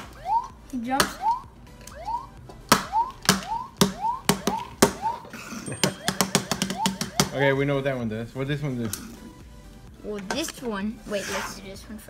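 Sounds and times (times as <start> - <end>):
electronic jump chirp: 0.0 - 7.3.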